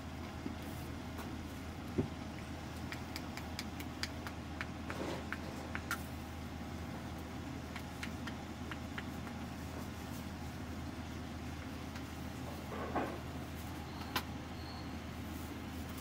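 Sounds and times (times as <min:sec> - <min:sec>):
low background hum: 0:00.0 - 0:16.0.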